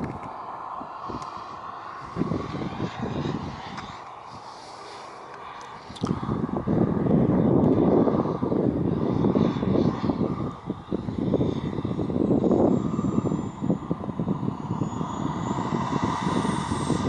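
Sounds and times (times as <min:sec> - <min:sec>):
model jet turbine rushing: 0:00.0 - 0:17.0
thin high turbine whine: 0:00.0 - 0:17.0.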